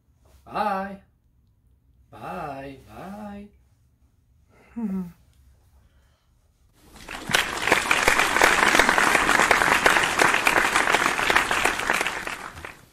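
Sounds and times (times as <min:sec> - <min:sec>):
crowd applause: 0:06.9 - 0:12.9.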